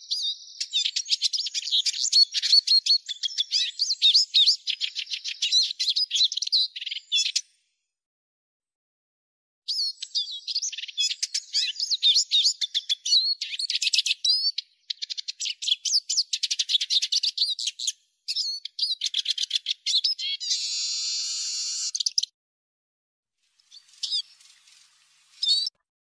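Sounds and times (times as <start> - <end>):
bird twittering and trilling: 0.0 - 7.6, 9.7 - 22.3, 23.4 - 25.8.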